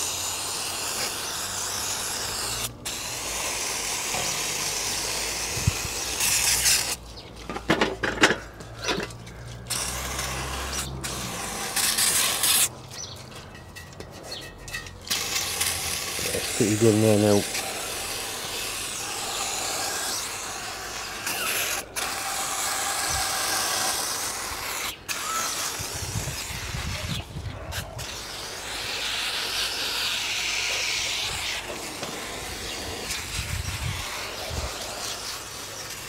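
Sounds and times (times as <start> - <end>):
aerosol spray hissing: 0.0 - 7.0, 15.2 - 24.1, 28.0 - 36.0.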